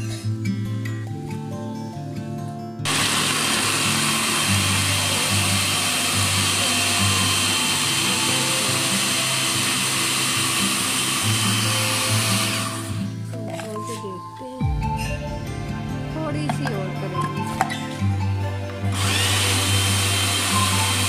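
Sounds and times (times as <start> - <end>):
blades chopping carrots: 2.9 - 13.0, 18.9 - 21.0
electric food chopper motor: 2.9 - 13.1, 18.7 - 21.0.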